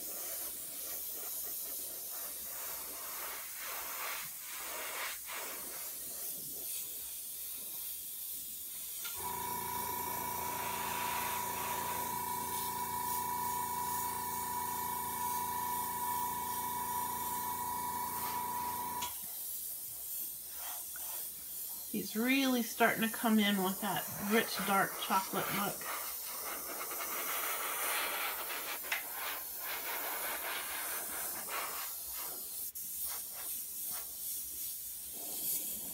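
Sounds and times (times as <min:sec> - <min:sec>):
airbrush hissing: 0:00.0 - 0:35.9
electric motor hum: 0:09.1 - 0:19.1.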